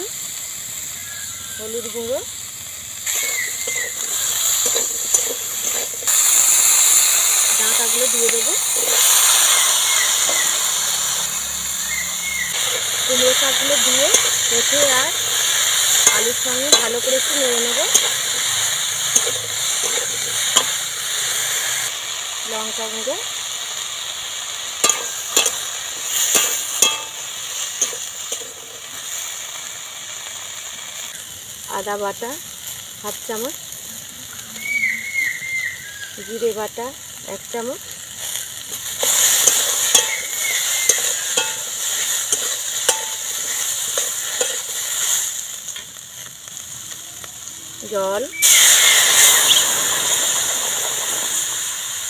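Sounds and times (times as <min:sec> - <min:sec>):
food sizzling in oil: 0:00.0 - 0:52.0
spatula scraping a wok: 0:03.0 - 0:21.9, 0:24.8 - 0:29.4, 0:38.0 - 0:46.0
spatula scraping a pan: 0:38.2 - 0:45.2.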